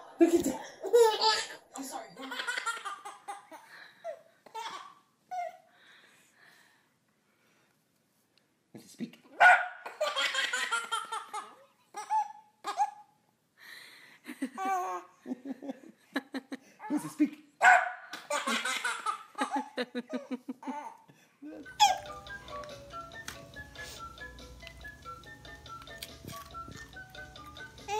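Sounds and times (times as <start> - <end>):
baby giggling: 0.3 - 5.6, 9.8 - 13.1, 14.5 - 15.1, 18.2 - 22.2
small dog barking: 9.4 - 9.9, 17.6 - 18.0
music: 21.6 - 27.9.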